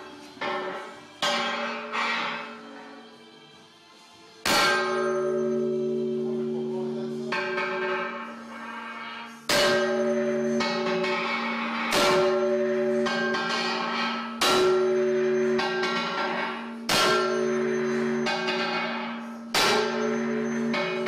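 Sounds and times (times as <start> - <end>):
sledgehammer striking metal blade: 0.4 - 2.5, 4.4 - 21.0
metal blade ringing: 4.5 - 21.0.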